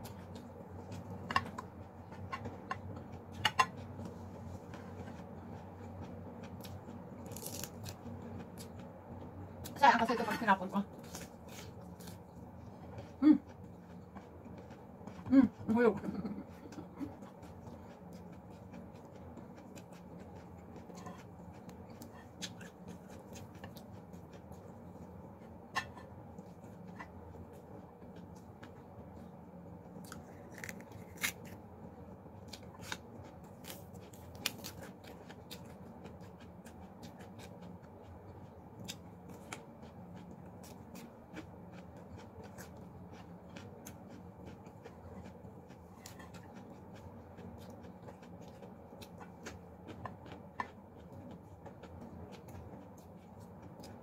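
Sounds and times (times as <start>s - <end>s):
person chewing: 0.0s - 8.9s, 16.2s - 29.3s, 30.0s - 31.6s, 32.4s - 54.0s
low room hum: 0.0s - 54.0s.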